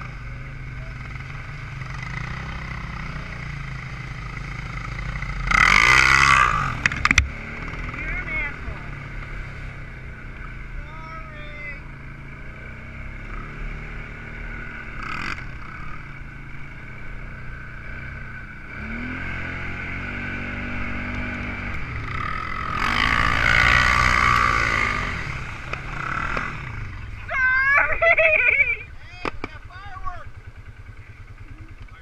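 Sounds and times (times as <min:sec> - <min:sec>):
quad engine running: 0:00.0 - 0:32.0.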